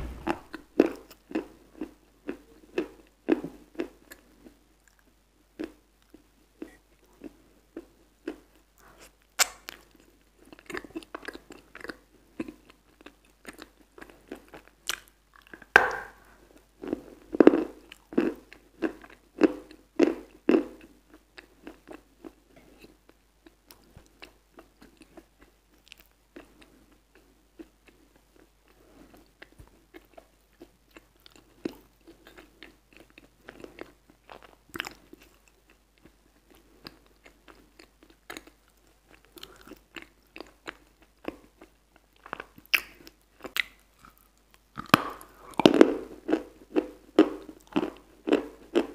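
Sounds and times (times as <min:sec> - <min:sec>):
crunchy biting and chewing: 0:36.5 - 0:48.9.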